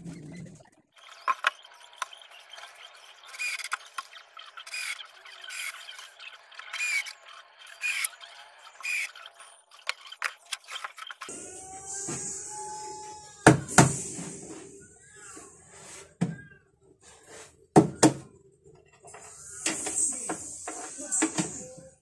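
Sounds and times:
small clicks and scrapes: 1.0 - 11.3.

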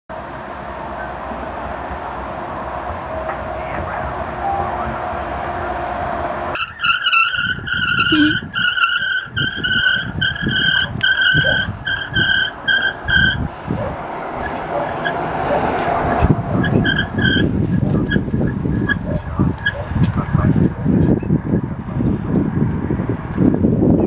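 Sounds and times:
rumble of wind and tyres: 0.1 - 24.0
bicycle brakes squealing: 6.6 - 13.5, 16.6 - 18.2.

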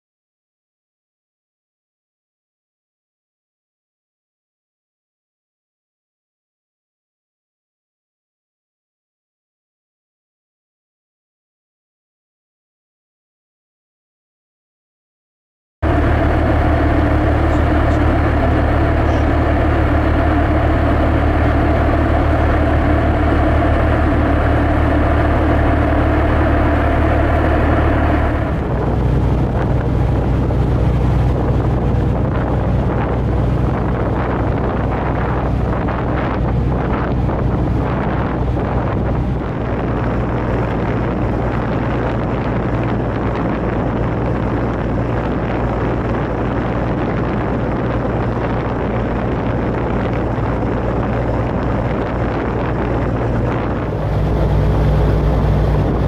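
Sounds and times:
boat engine droning: 15.8 - 56.0
water: 15.8 - 56.0
wind noise: 15.8 - 56.0.

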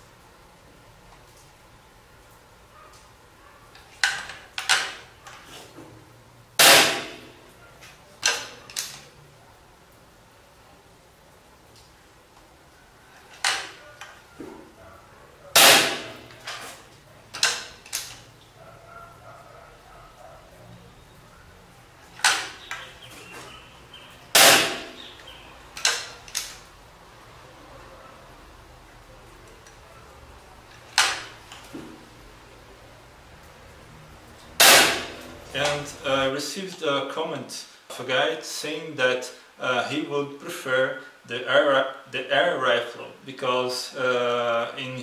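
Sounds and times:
air rifle shot: 6.6 - 7.3, 15.6 - 16.3, 24.4 - 25.0, 34.6 - 35.2.

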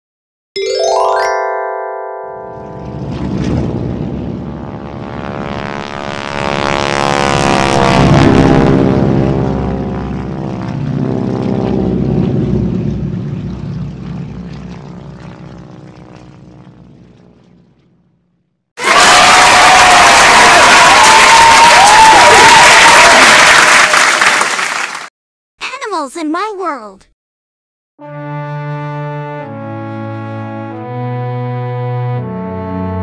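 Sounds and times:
propeller airplane engine passing: 2.6 - 18.4.

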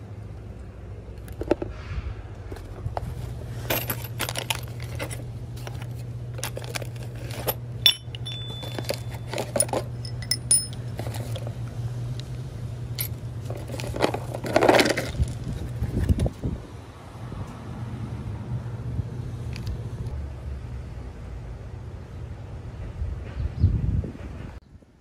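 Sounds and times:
steady low hum: 0.0 - 24.0
metal hardware clinking: 3.6 - 5.8, 6.4 - 11.4.

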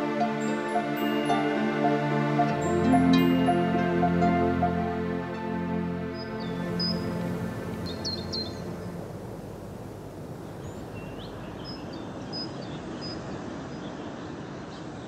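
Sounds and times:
outdoor background noise: 0.0 - 15.0
small birds chirping: 6.2 - 9.1, 10.3 - 15.0.

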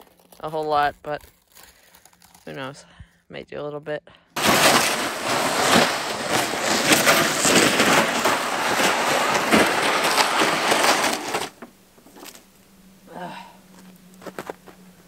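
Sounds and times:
sled scraping over crusted snow: 4.4 - 12.5
snow crust cracking: 4.4 - 12.6.

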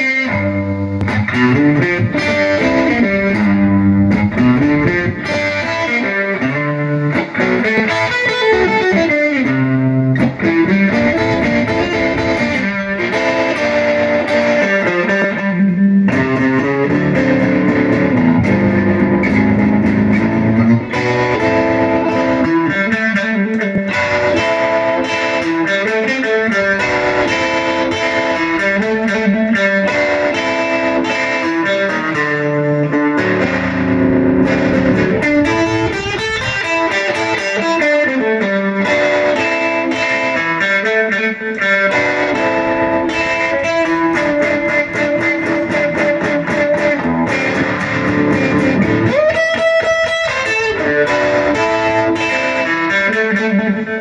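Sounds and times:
electric guitar solo: 0.0 - 54.0.

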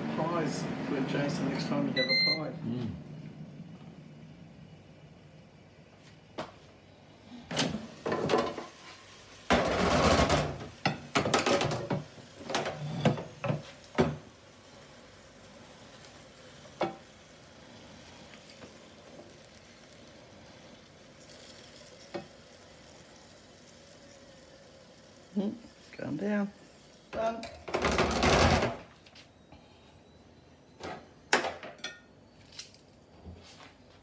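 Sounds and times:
sausages sizzling: 7.9 - 9.9, 10.7 - 27.5.

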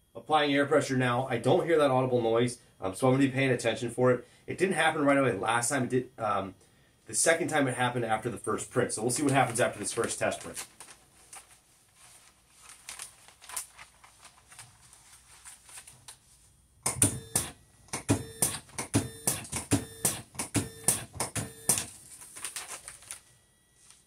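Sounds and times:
printer sharp clicks: 16.8 - 22.0.

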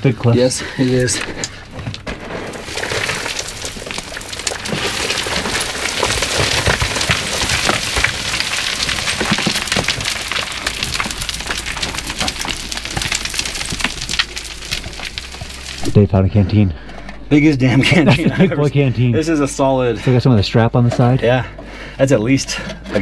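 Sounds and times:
gravel crunching under boots: 0.2 - 18.2.

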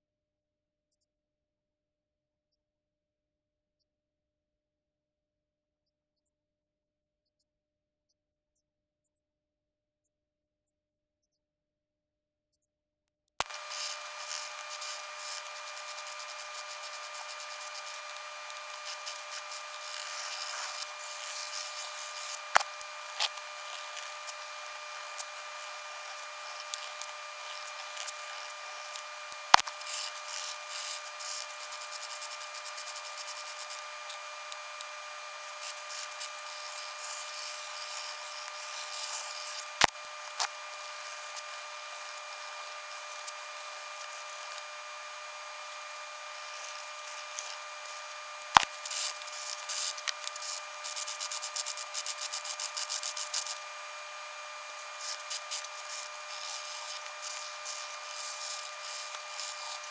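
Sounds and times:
sharp clicks: 13.4 - 40.6
faint whine: 13.4 - 59.9
pencil scratching on paper: 13.6 - 34.8, 35.4 - 39.7, 48.8 - 53.8, 54.5 - 59.9.

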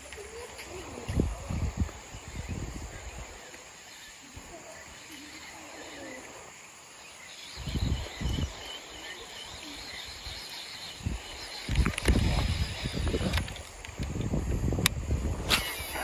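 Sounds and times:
faint insect chirping: 0.0 - 16.0
bird chirping: 2.1 - 13.7.

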